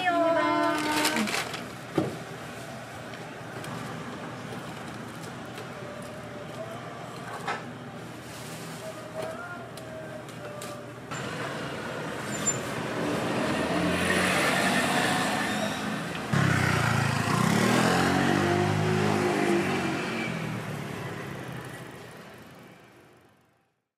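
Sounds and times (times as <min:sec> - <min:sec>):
passing street traffic: 0:00.0 - 0:23.7
vehicle engine rising and falling: 0:11.2 - 0:21.2.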